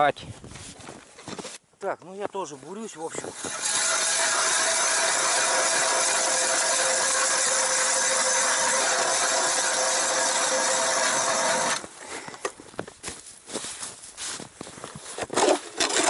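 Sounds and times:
hand ice auger drilling into ice: 3.0s - 11.9s, 15.2s - 16.0s.

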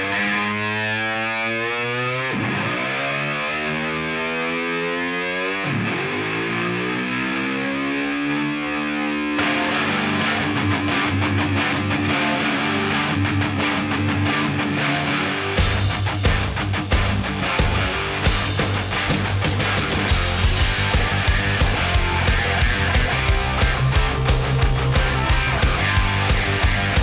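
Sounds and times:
distorted electric guitar chords: 0.0s - 27.0s
drums and bass: 14.7s - 27.0s.

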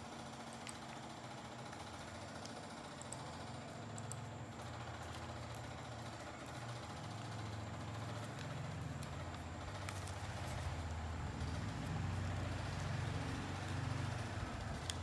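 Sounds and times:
low mechanical hum: 0.0s - 15.0s
newspaper crinkling: 4.6s - 15.0s.

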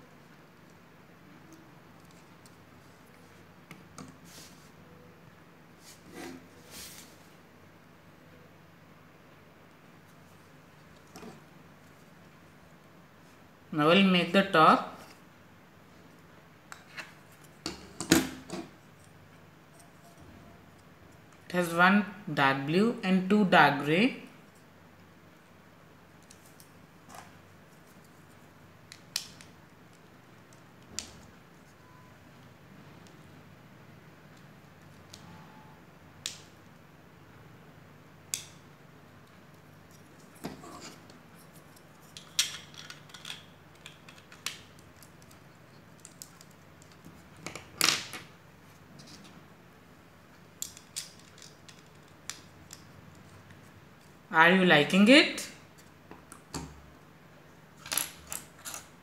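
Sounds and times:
plastic bricks clicking together: 42.2s - 44.6s.

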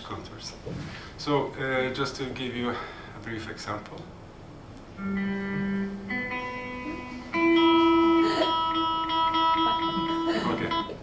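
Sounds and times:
electric guitar long held notes: 5.0s - 11.0s.

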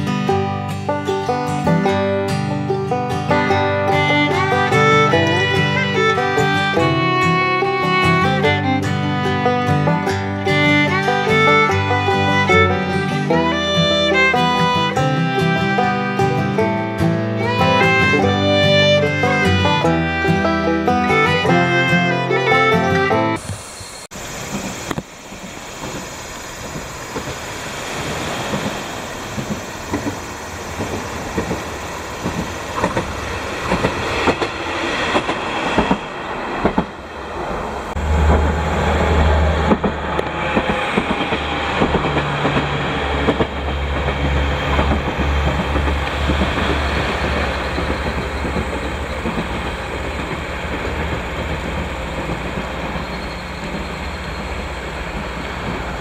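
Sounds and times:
train wheels clacking: 0.0s - 23.5s, 24.5s - 56.0s
diesel engine rumble: 0.0s - 56.0s.

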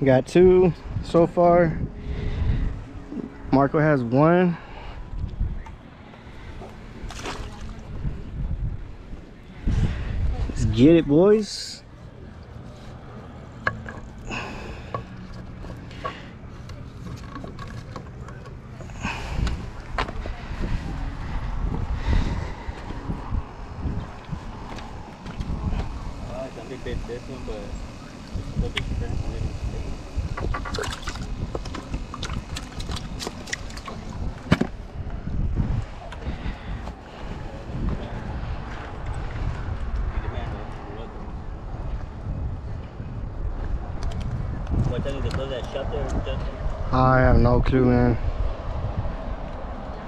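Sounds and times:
wind buffeting microphone: 0.0s - 11.5s, 17.5s - 50.0s
steady low rumble: 0.0s - 50.0s
water splashing with handling clicks: 7.1s - 7.9s, 30.4s - 34.6s.

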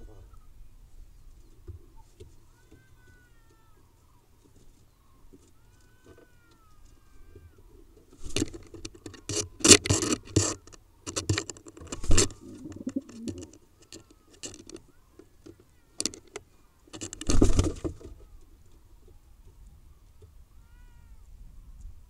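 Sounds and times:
pigeon wings flapping: 17.2s - 18.1s.

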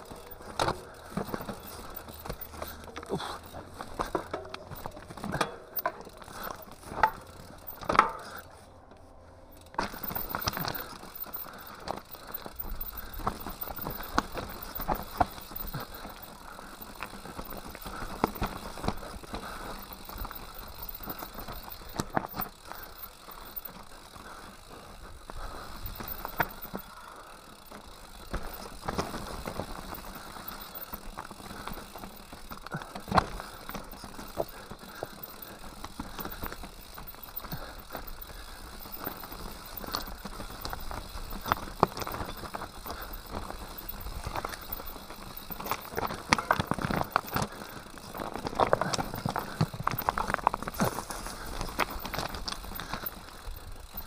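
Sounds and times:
mountain bike rattling: 0.0s - 54.0s.

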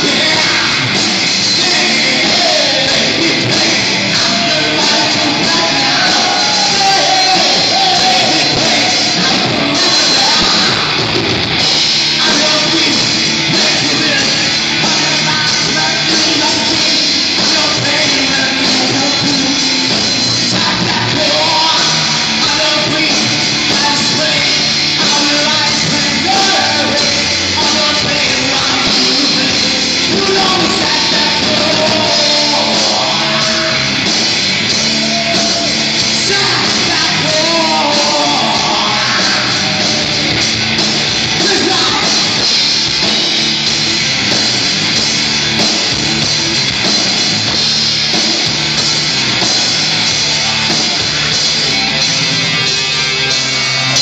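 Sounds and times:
person singing: 0.0s - 40.4s, 41.3s - 42.6s
live rock band playing: 0.0s - 54.0s.

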